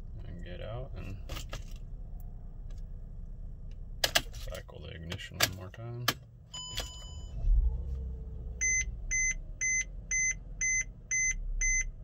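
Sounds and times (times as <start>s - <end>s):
warning beep: 6.6s - 7.4s, 8.6s - 12.0s.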